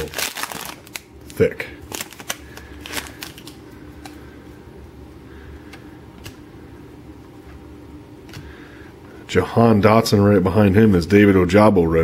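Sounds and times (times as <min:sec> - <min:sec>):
foil wrapper crinkling: 0:00.0 - 0:04.2
low steady hum: 0:00.0 - 0:12.0.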